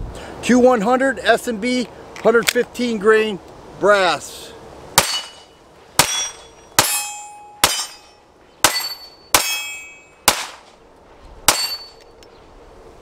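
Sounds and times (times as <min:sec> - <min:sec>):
pistol shots: 0:05.0 - 0:05.4, 0:06.0 - 0:08.0, 0:08.6 - 0:10.7, 0:11.5 - 0:11.9
metallic ringing: 0:05.0 - 0:10.3, 0:11.5 - 0:12.2.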